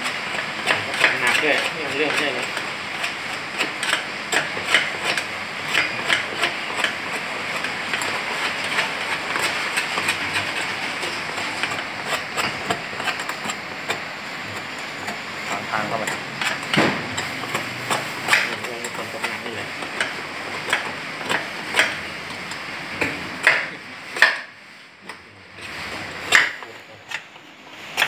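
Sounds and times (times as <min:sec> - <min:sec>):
loud knock: 0:16.7 - 0:17.1.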